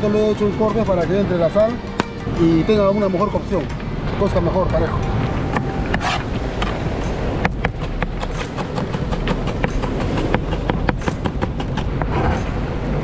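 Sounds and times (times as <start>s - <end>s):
knife chopping on plastic board: 7.5s - 12.1s.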